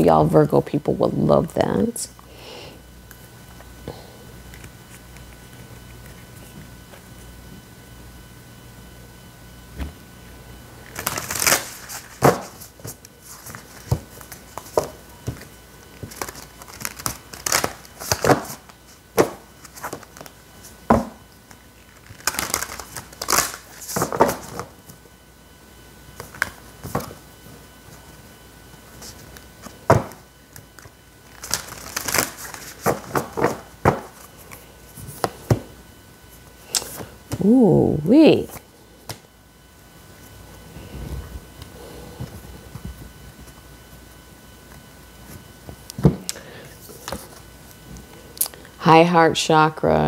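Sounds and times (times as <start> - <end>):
cards being shuffled: 10.8 - 25.0, 28.9 - 35.6.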